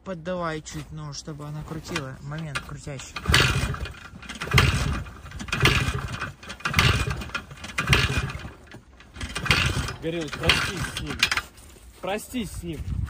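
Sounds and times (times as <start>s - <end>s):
motorcycle engine kicked over: 1.7s - 11.6s.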